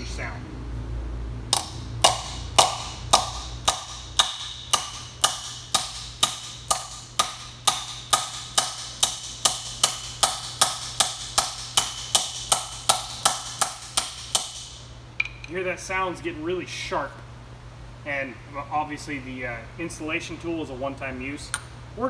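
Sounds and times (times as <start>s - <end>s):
hammer striking metal tool: 1.5s - 15.5s.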